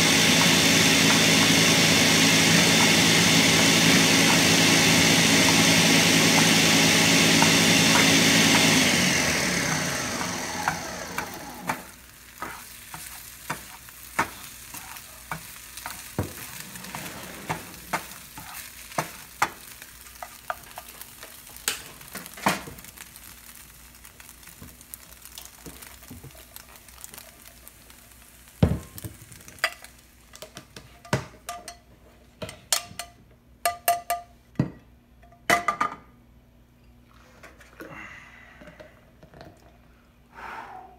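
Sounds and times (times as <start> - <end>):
plastic spatula scraping frying pan: 15.9 - 18.7.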